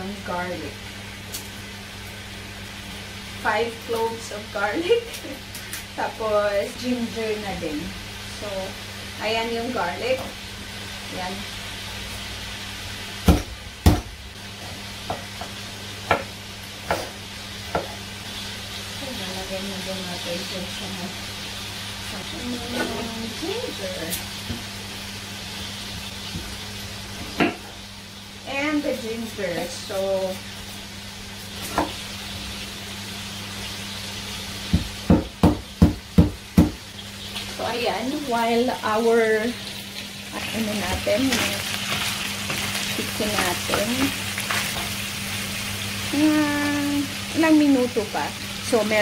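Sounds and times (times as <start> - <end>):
chicken sizzling in a pan: 0.0 - 49.0
knife chopping on wooden board: 13.2 - 14.1, 16.1 - 17.1, 34.7 - 36.8.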